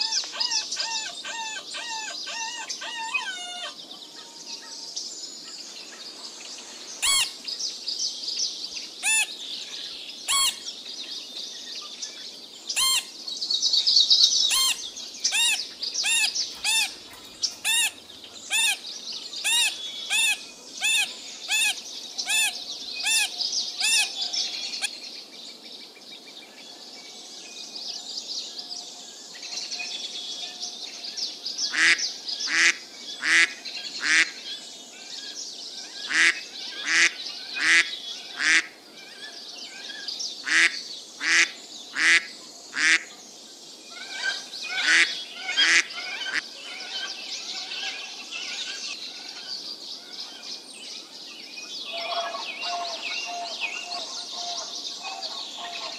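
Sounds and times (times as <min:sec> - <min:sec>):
large birds calling: 0:00.0 - 0:04.8, 0:06.9 - 0:07.5, 0:08.8 - 0:10.8, 0:12.6 - 0:13.2, 0:13.8 - 0:25.0, 0:35.7 - 0:43.2, 0:43.9 - 0:51.0, 0:51.7 - 0:55.9
small birds chirping: 0:00.0 - 0:27.0, 0:27.6 - 0:55.9.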